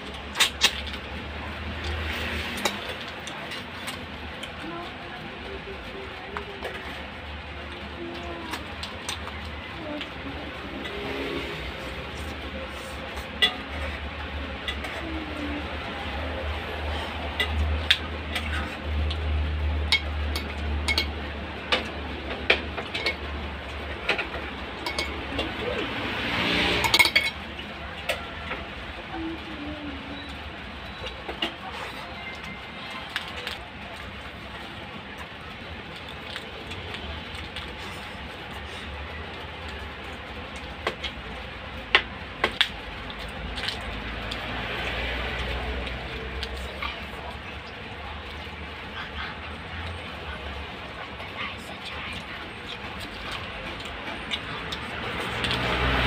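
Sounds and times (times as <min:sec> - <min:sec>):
chewing and handling food: 0:30.0 - 0:56.0
electric fan hum: 0:52.8 - 0:56.0.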